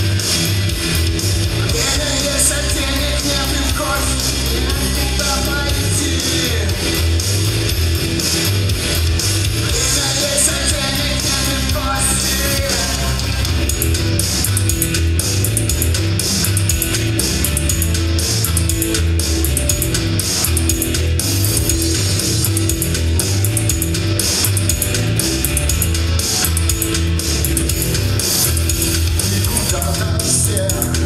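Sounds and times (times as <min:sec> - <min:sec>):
bass line: 0:00.0 - 0:31.0
man singing: 0:01.6 - 0:07.1, 0:09.7 - 0:13.6, 0:29.2 - 0:31.0
electric guitar strumming: 0:11.6 - 0:31.0
drum beat: 0:12.6 - 0:31.0.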